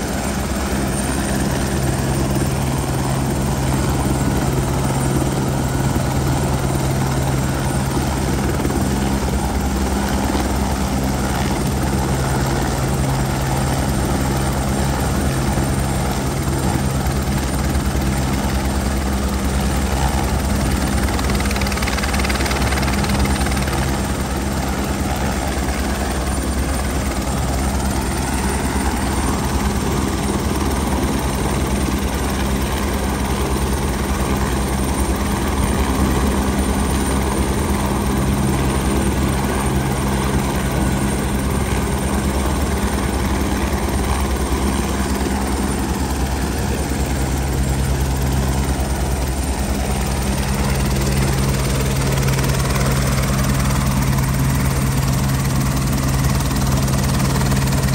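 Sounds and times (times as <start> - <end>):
helicopter turbine and rotor: 0.0 - 57.9.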